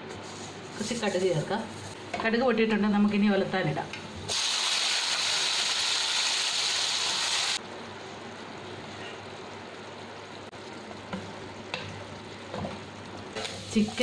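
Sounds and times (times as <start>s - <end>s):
food sizzling in a pan: 4.3s - 14.0s.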